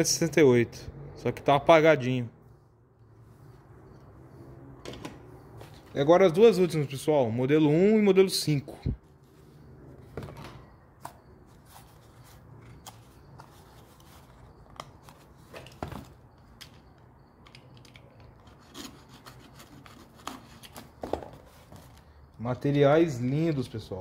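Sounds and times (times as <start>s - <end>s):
packaging rubbing and scraping: 18.4s - 22.0s.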